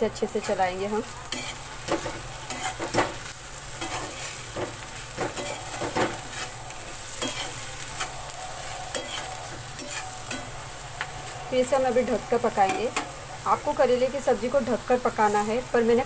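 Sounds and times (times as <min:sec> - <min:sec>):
vegetables sizzling in oil: 0:00.0 - 0:16.0
metal spatula scraping a pan: 0:00.3 - 0:00.7, 0:01.3 - 0:10.7.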